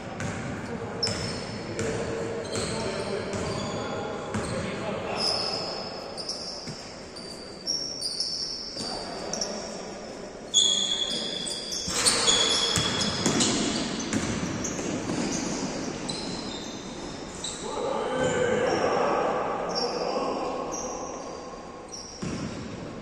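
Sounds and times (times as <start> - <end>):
basketball bouncing: 0.2 - 2.0, 12.7 - 15.3, 22.2 - 22.7
sneakers squeaking on court: 0.2 - 9.7, 10.5 - 17.6, 20.7 - 22.8.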